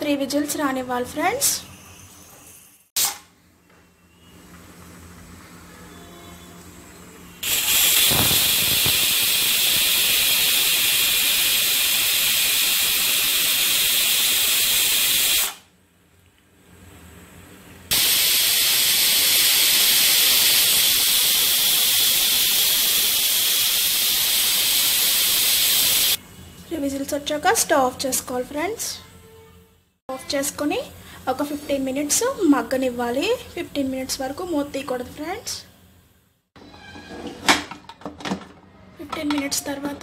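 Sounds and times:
pressure cooker whistling: 7.4s - 15.7s, 17.9s - 26.2s.

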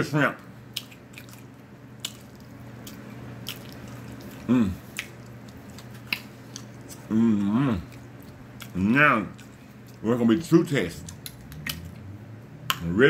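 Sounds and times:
steady low hum: 0.0s - 13.0s
wet mouth clicks while chewing: 0.7s - 7.1s, 7.9s - 10.0s, 11.0s - 12.1s
person humming: 4.4s - 4.9s, 7.1s - 7.9s.

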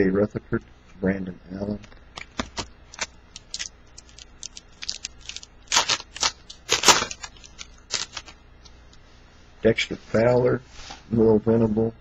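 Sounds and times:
wrapper tearing and crinkling: 2.2s - 8.4s.

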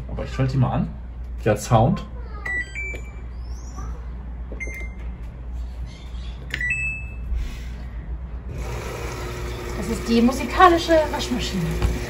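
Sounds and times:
washing machine beeps: 2.4s - 3.5s, 4.6s - 5.1s, 6.5s - 7.3s.

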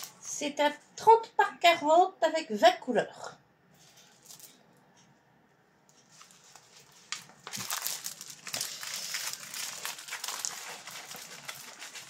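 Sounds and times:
plastic packaging crinkling: 0.0s - 0.3s, 3.8s - 4.6s, 5.9s - 12.0s.

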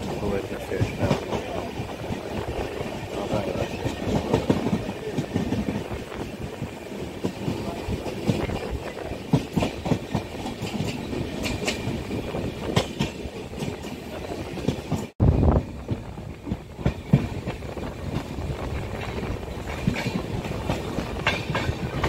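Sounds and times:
train rumble inside coach: 0.0s - 22.0s
wheel clacks over rail joints: 7.2s - 15.1s, 16.5s - 22.0s.

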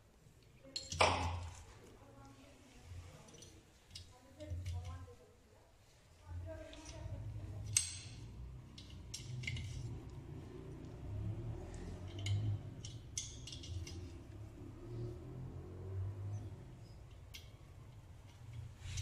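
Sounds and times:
metal clinks: 6.8s - 10.2s, 11.7s - 14.4s.

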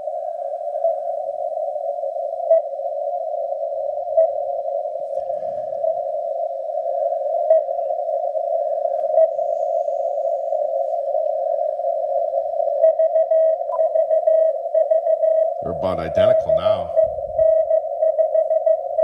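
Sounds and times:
weak morse code signal: 6.9s - 7.9s, 11.6s - 19.0s
narrow band radio hiss: 15.3s - 18.0s.

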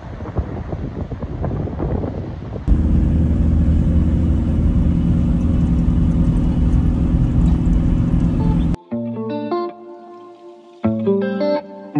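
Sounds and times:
wind buffeting microphone: 0.0s - 8.8s
van engine and road noise: 2.6s - 8.8s.

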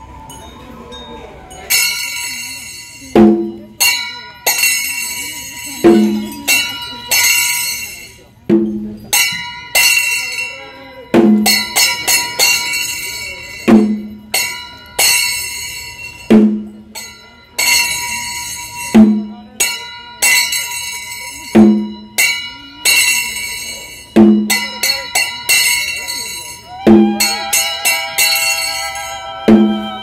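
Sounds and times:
ringing metal bells: 0.0s - 30.0s
drum struck: 3.1s - 4.0s, 5.8s - 6.4s, 8.5s - 10.0s, 11.1s - 12.8s, 13.6s - 15.3s, 16.3s - 16.8s, 18.9s - 19.4s, 21.5s - 22.4s, 24.2s - 24.8s, 26.8s - 28.1s, 29.5s - 30.0s.

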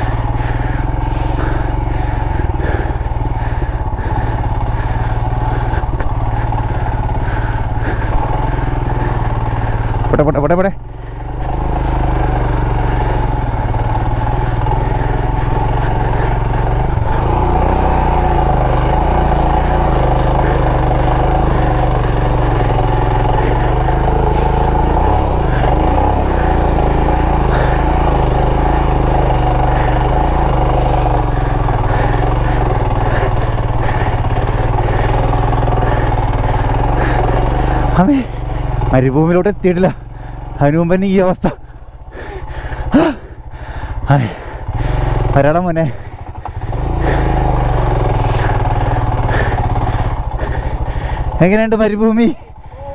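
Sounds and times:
motorcycle engine under load: 0.0s - 52.9s.

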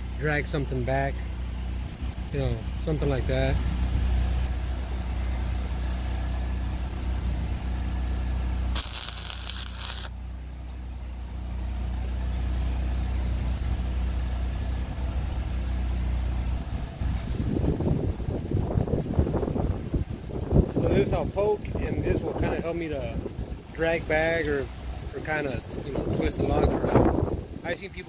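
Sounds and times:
engine humming: 0.0s - 28.0s
welding arc crackling and hissing: 8.7s - 10.1s
wind buffeting microphone: 17.0s - 23.6s, 25.5s - 27.6s.

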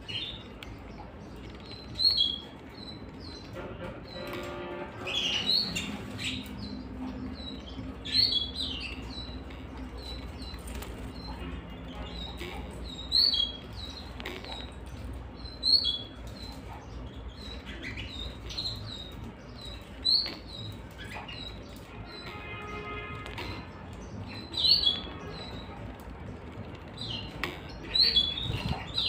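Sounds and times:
canaries chirping: 0.0s - 29.0s.

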